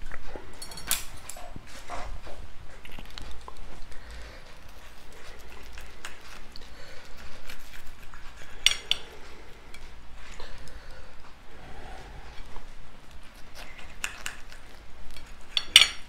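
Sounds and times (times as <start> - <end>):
cutlery scraping on plate: 15.1 - 16.0.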